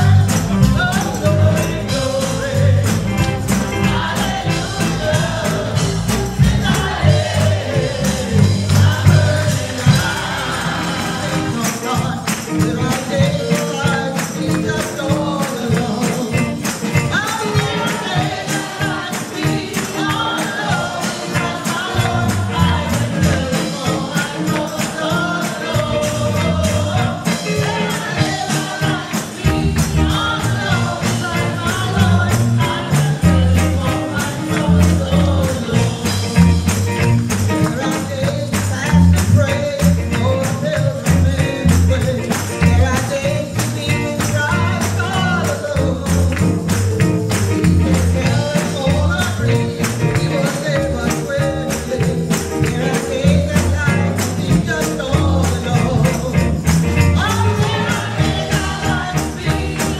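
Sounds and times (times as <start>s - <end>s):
choir singing: 0.0s - 12.2s, 17.1s - 36.3s, 57.2s - 59.9s
drums: 0.0s - 59.9s
keyboard: 0.0s - 59.9s.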